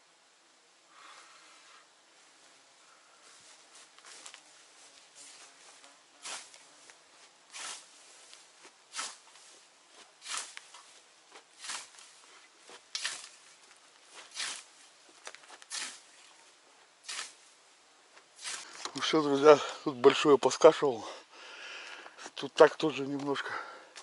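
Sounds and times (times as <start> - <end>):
grass rustling: 0.9 - 20.8
scythe swishing through grass: 3.4 - 17.6, 18.4 - 18.8.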